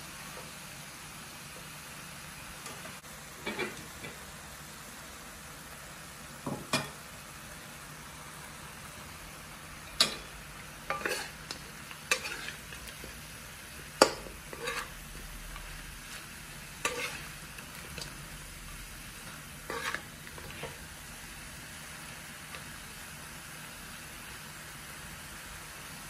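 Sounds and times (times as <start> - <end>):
meat sizzling in a wok: 0.0 - 26.0
spatula scraping and knocking wok: 2.6 - 4.3, 9.8 - 23.0.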